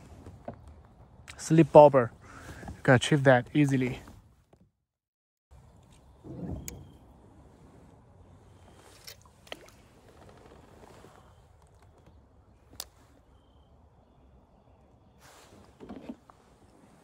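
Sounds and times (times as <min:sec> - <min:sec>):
water sloshing: 0:05.6 - 0:10.8.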